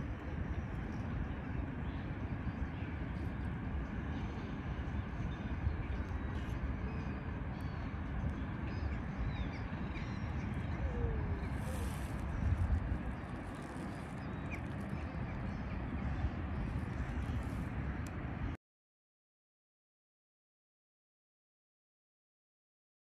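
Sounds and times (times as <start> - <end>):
steady low rumble: 0.0 - 18.6
faint bird calls: 9.4 - 12.6.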